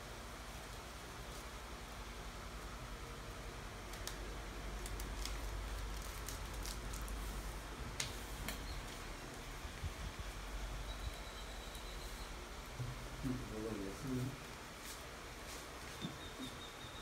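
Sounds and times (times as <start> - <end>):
electric fan whirring: 0.0 - 17.0
paper rustling and crinkling: 4.8 - 9.5.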